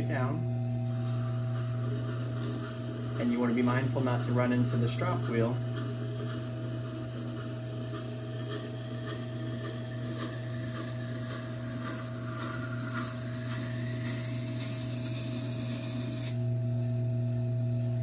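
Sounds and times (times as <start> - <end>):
grinder motor humming: 0.8 - 17.0
knife grinding against stone: 5.5 - 16.4.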